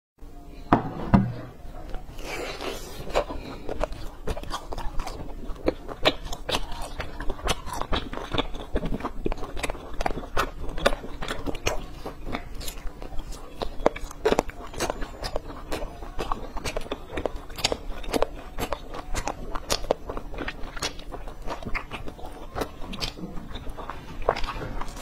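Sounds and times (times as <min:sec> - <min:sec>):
loud thump: 0:00.7 - 0:01.5
crunchy bites: 0:02.4 - 0:25.0.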